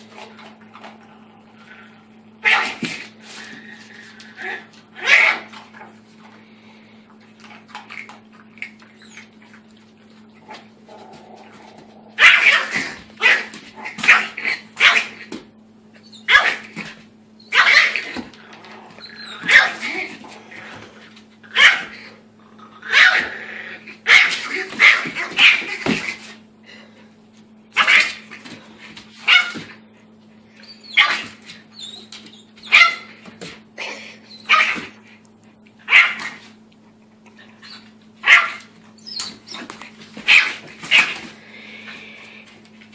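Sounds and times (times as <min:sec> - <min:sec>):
puppy yapping: 0:02.4 - 0:03.0, 0:04.4 - 0:05.7, 0:10.5 - 0:15.2, 0:16.0 - 0:18.3, 0:18.9 - 0:20.2, 0:21.5 - 0:22.2, 0:22.8 - 0:26.2, 0:27.8 - 0:28.3, 0:29.2 - 0:29.7, 0:30.6 - 0:33.2, 0:34.3 - 0:35.0, 0:35.8 - 0:36.5, 0:37.6 - 0:41.3.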